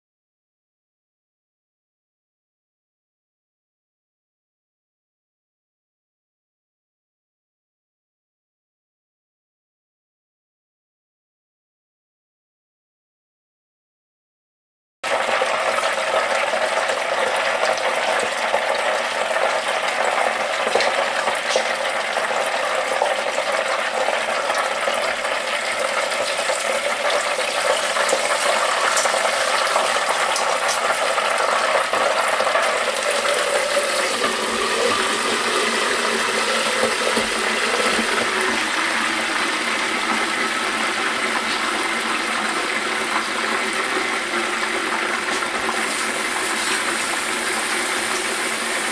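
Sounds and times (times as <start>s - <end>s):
meat sizzling in deep fryer: 15.1s - 48.9s.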